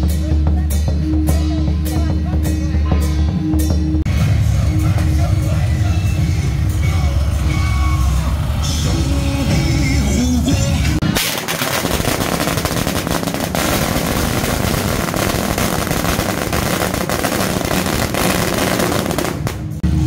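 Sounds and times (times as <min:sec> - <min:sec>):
firecrackers crackling: 0:11.0 - 0:19.8.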